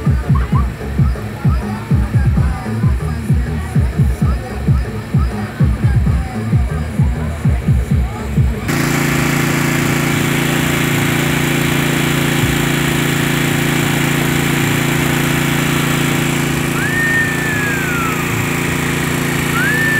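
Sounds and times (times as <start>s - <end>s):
generator engine droning: 0.0s - 19.9s
high whistle-like tone: 16.8s - 18.4s, 19.5s - 19.9s.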